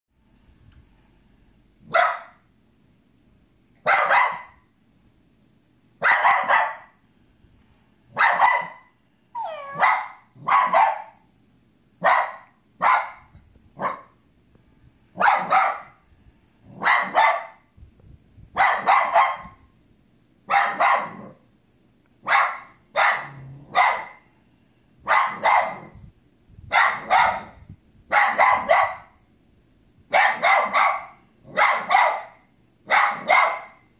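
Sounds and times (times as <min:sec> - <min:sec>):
small dog barking: 0:01.8 - 0:02.5, 0:03.8 - 0:04.7, 0:06.0 - 0:07.0, 0:08.1 - 0:11.3, 0:12.0 - 0:14.2, 0:15.2 - 0:16.0, 0:16.7 - 0:17.7, 0:18.6 - 0:19.6, 0:20.5 - 0:21.4, 0:22.2 - 0:24.3, 0:25.0 - 0:26.0, 0:26.7 - 0:29.2, 0:30.1 - 0:33.9.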